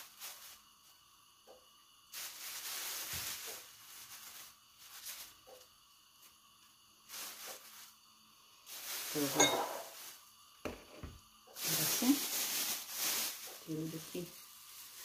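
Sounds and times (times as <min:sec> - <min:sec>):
plastic bag rustling and crinkling: 0:00.0 - 0:00.7, 0:02.1 - 0:05.6, 0:07.0 - 0:08.0, 0:08.6 - 0:10.9, 0:11.6 - 0:15.0.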